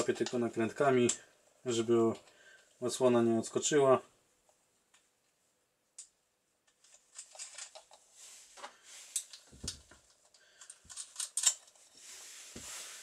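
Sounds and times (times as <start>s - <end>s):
metallic clicks and rattles: 6.8s - 8.0s, 9.1s - 11.8s.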